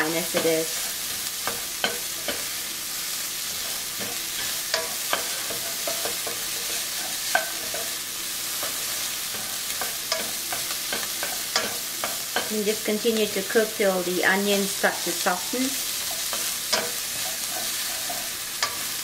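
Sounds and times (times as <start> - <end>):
spatula scraping and knocking pan: 0.0 - 2.6, 3.3 - 12.6, 15.8 - 19.0
vegetables sizzling in oil: 0.0 - 19.0.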